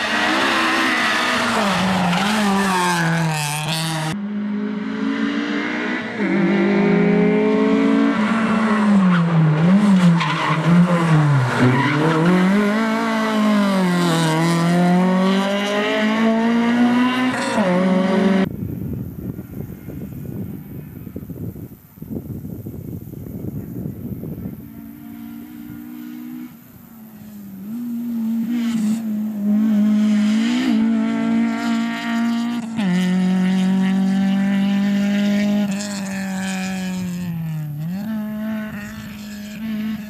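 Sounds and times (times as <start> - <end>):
rally car engine revving hard: 0.0 - 18.5, 27.2 - 40.0.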